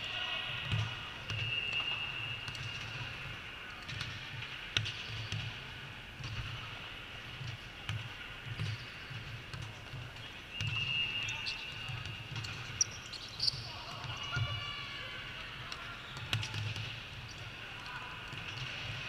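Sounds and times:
ball bouncing on hard court: 0.6s - 1.8s, 3.8s - 6.6s, 7.4s - 14.6s, 15.6s - 17.4s
shoe squeak: 12.5s - 14.6s.

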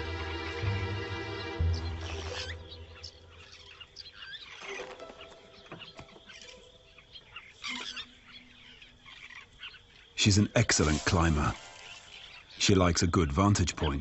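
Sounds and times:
background music: 0.0s - 3.8s, 10.2s - 12.7s
birds chirping: 0.0s - 14.0s.

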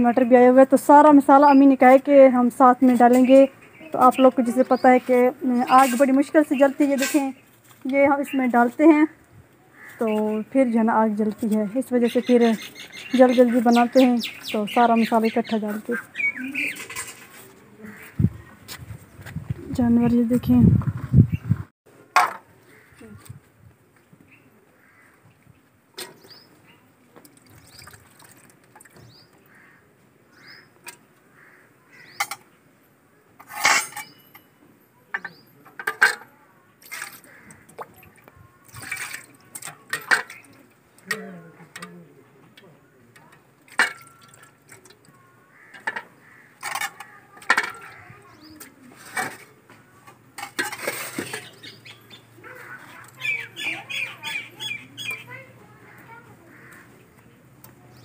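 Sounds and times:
water splashing: 27.2s - 29.0s, 36.8s - 40.7s
steel dishes clinking: 33.4s - 34.5s.

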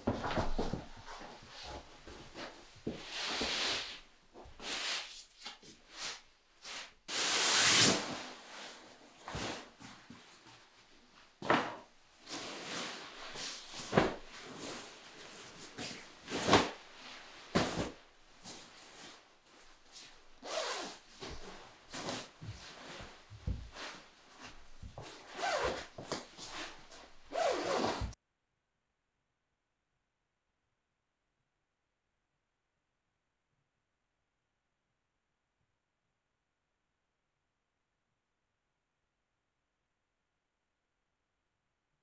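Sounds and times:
fabric rustling and swishing: 0.0s - 28.2s.

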